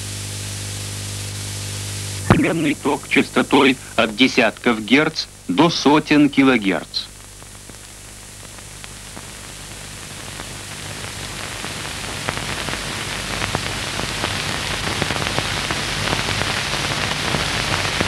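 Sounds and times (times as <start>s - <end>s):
crackling hiss with clicks: 0.0s - 18.0s
low steady hum: 0.5s - 9.4s.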